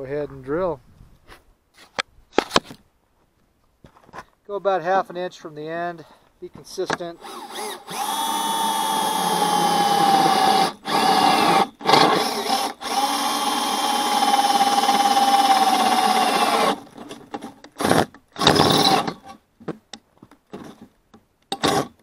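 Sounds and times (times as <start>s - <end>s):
power drill boring metal: 7.2s - 17.0s, 17.8s - 19.3s.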